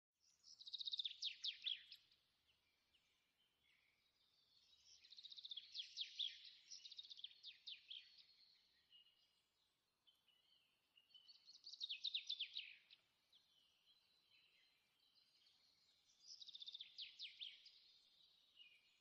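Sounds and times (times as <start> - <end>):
bird singing high chirps: 0.2 - 19.0.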